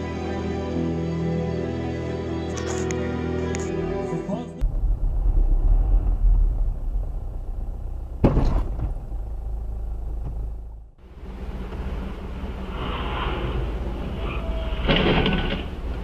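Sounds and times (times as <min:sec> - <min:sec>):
road and engine rumble: 0:00.0 - 0:16.0
loud thump: 0:04.6 - 0:09.4.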